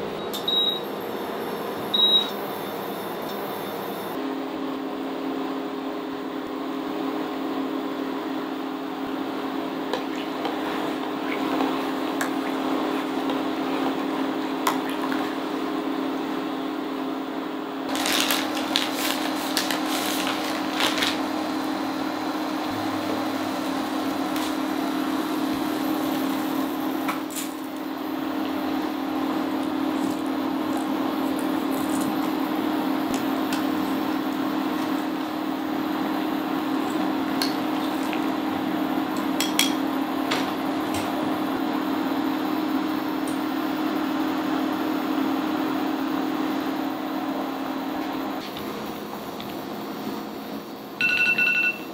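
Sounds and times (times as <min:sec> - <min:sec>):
electrical hum of induction cooktop: 0:00.0 - 0:51.9
plastic bag crinkling: 0:17.9 - 0:21.4.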